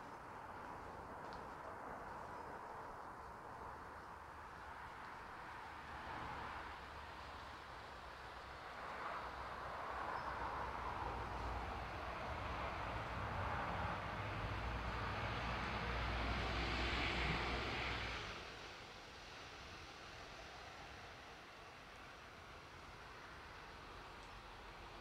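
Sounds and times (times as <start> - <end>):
passing vehicle engine drone: 10.6 - 18.9.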